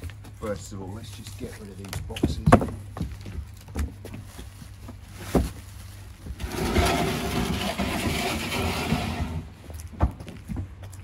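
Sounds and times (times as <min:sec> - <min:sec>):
cardboard box scraping on paving: 0:05.2 - 0:09.6.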